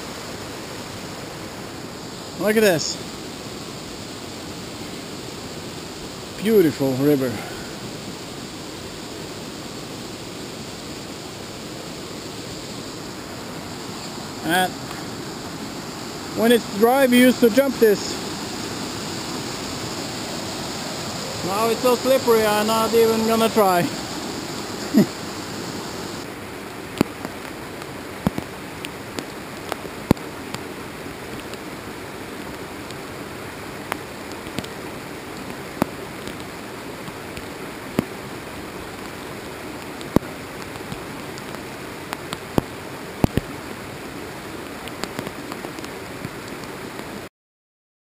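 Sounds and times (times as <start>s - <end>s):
river rushing: 0.0s - 47.3s
raindrops ticking on microphone: 11.2s - 47.3s.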